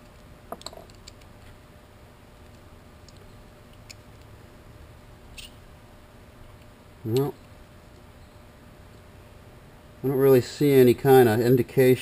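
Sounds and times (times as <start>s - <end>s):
small metal clicks and taps: 0.5s - 1.3s.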